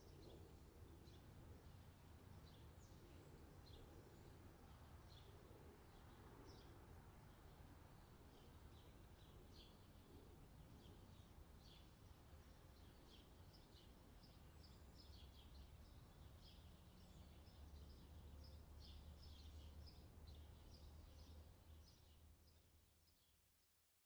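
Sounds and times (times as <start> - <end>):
small birds chirping: 7.4 - 23.4.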